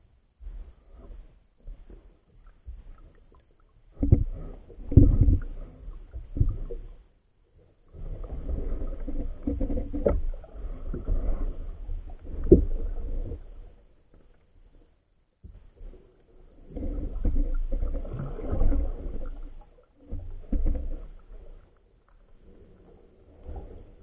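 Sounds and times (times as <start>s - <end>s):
muffled underwater rumbling: 0.0s - 7.1s, 7.7s - 14.8s, 15.4s - 24.0s.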